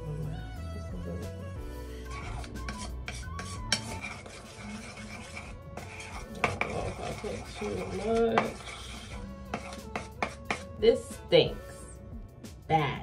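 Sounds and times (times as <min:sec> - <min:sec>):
spoon scraping and clinking in bowl: 0:02.1 - 0:10.8.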